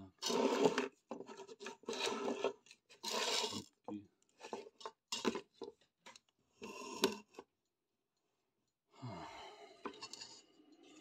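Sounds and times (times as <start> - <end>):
sheet metal scraping on wood: 0.2 - 3.7
person sighing: 8.9 - 9.8.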